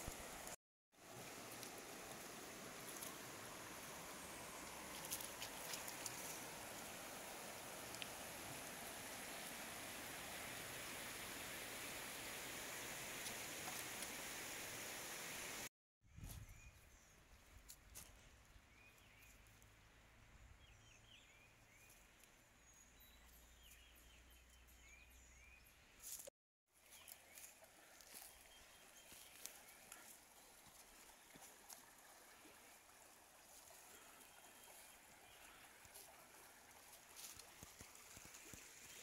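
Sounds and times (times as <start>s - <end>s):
creek flowing: 0.0s - 15.7s, 26.7s - 39.0s
small birds chirping: 20.4s - 31.7s.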